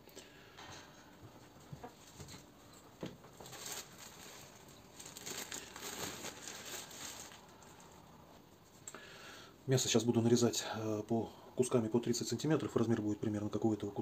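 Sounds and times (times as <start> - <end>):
wrapping material rustling: 1.8 - 8.8.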